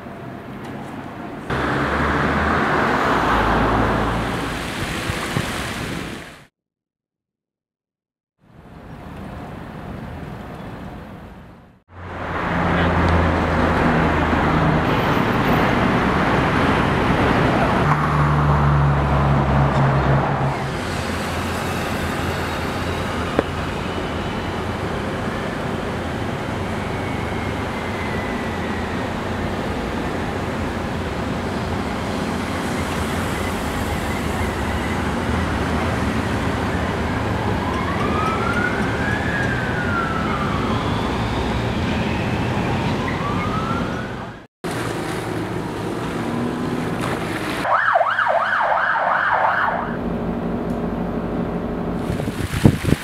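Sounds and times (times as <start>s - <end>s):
vehicles passing: 0.0s - 6.5s, 8.5s - 53.0s
siren wailing: 36.6s - 44.3s, 47.7s - 50.1s
heavy low engine drone: 50.0s - 52.1s.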